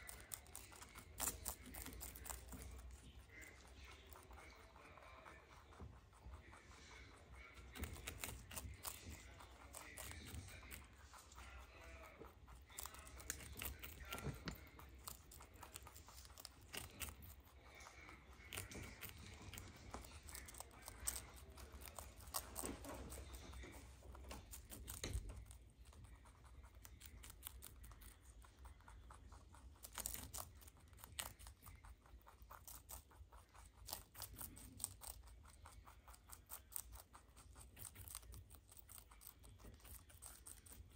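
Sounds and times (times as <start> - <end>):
rabbits chewing leaves: 0.0 - 40.9.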